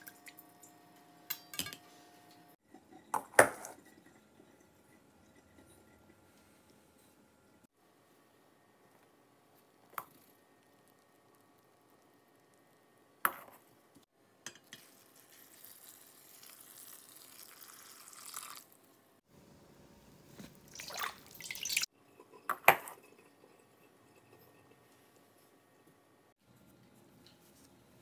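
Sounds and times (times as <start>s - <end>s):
water pouring into a colander: 15.1s - 18.8s, 20.7s - 21.9s.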